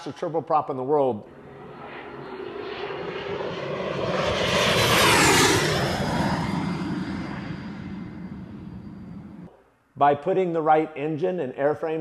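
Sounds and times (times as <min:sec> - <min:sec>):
high turbine whine: 0:01.2 - 0:09.5
turboprop airplane flying past: 0:01.2 - 0:09.5.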